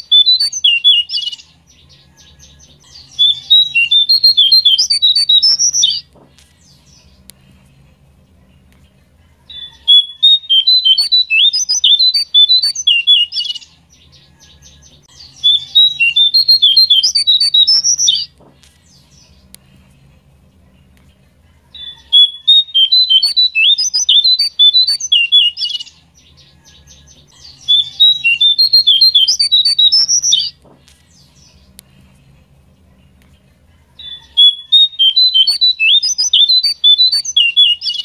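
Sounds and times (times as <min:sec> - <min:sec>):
bird whistling song: 0:00.0 - 0:07.2, 0:09.5 - 0:18.4, 0:21.8 - 0:30.6, 0:34.0 - 0:38.0.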